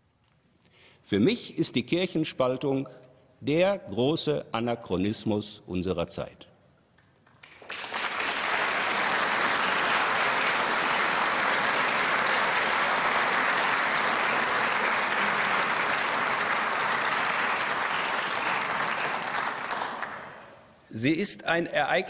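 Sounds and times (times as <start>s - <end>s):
audience applauding in a hall: 7.0s - 20.7s.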